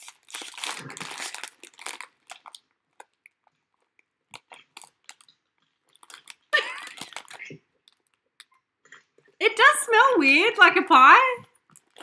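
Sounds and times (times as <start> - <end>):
foil packet crinkling: 0.0 - 3.2, 4.4 - 8.2.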